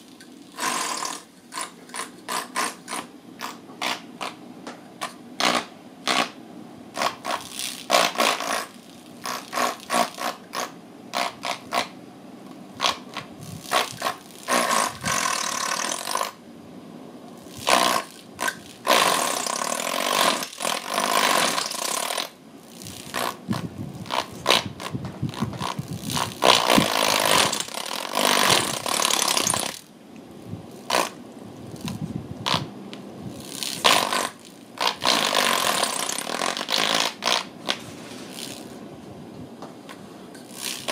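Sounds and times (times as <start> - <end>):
plastic fan scraping in stand: 33.3 - 38.9.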